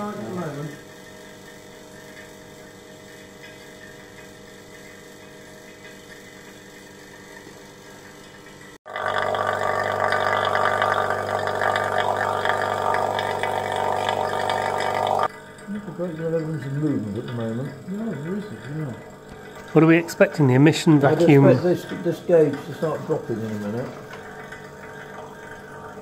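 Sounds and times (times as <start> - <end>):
vacuum pump running: 0.0 - 26.0.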